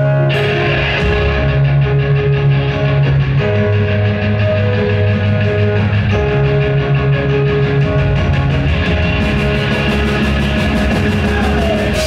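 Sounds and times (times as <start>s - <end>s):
held keyboard chords: 0.0s - 12.0s
metal band playing: 0.0s - 12.0s.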